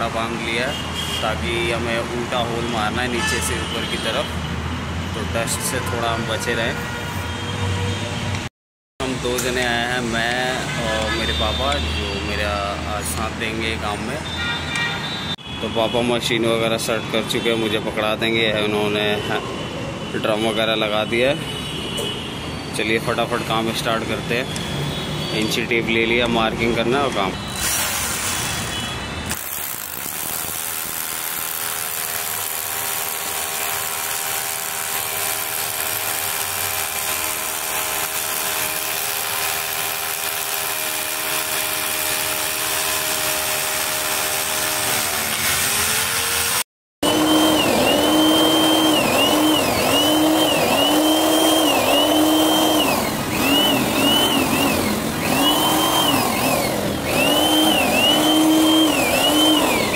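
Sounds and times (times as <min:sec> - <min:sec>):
power drill drilling into concrete: 0:27.5 - 0:59.9.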